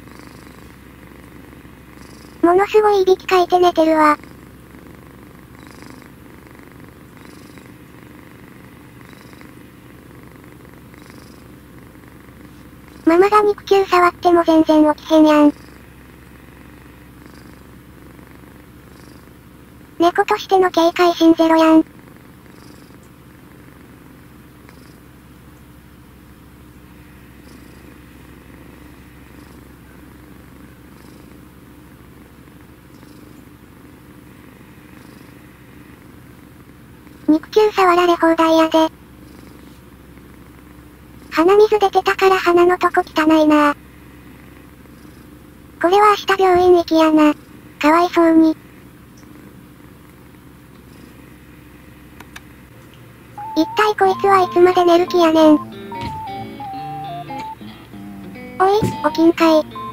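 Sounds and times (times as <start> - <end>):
kitten snoring: 0.0 - 25.4, 26.7 - 52.1, 53.4 - 57.9.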